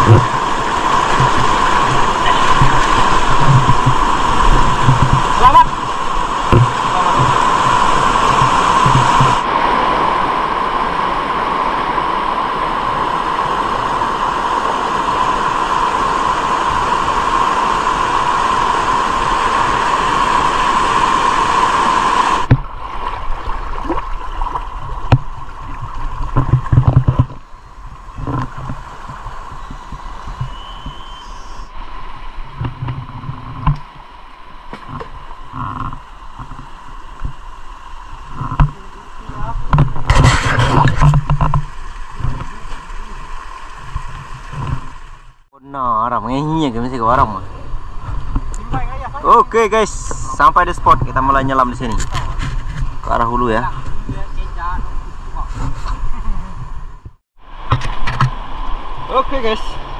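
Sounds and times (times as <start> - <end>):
gurgling water: 0.0 - 45.5
rushing river water: 0.0 - 59.9
knocks and low thumps: 1.1 - 5.6, 6.5 - 9.4, 22.4 - 22.7, 24.8 - 27.4.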